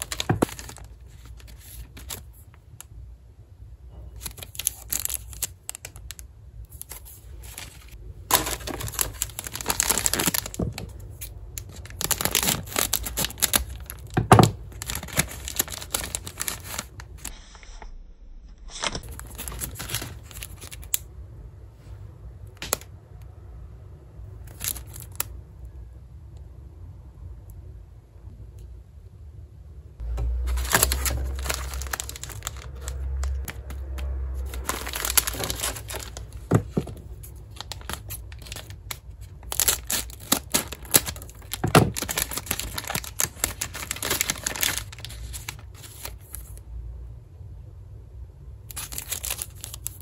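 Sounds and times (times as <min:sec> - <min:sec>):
plastic wrappers crinkling and tearing: 0:00.0 - 0:02.6, 0:04.1 - 0:17.3, 0:18.8 - 0:21.0, 0:24.5 - 0:25.3, 0:30.4 - 0:46.6, 0:48.7 - 0:50.0.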